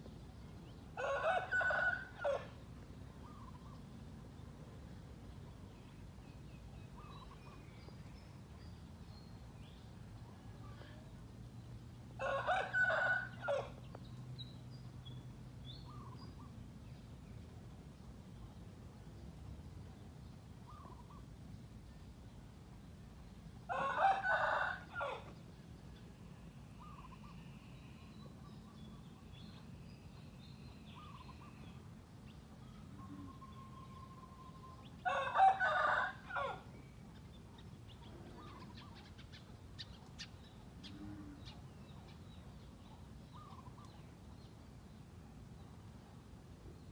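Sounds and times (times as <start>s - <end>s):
rooster crowing: 1.0s - 2.5s, 12.2s - 13.7s, 23.7s - 25.3s, 34.3s - 36.7s.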